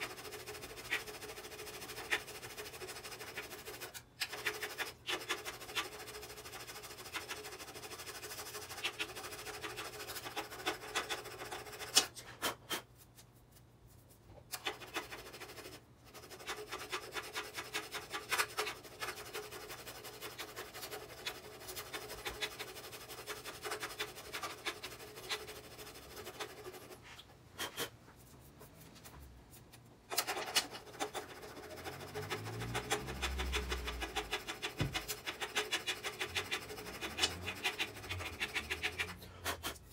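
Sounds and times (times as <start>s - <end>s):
hand file rasping on metal: 0.0s - 12.8s, 14.6s - 27.9s, 30.8s - 39.9s.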